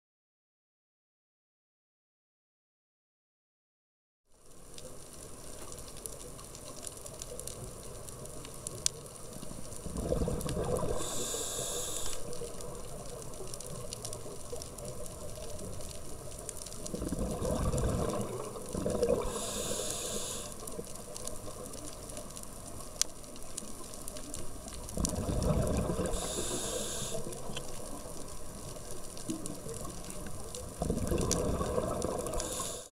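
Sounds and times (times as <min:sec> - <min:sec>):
low water hiss: 0:04.3 - 0:32.9
exhaled bubbles rumbling: 0:09.6 - 0:22.4, 0:24.6 - 0:32.8
regulator inhale hissing: 0:10.8 - 0:12.4, 0:19.0 - 0:20.8, 0:25.8 - 0:27.6, 0:31.9 - 0:32.9.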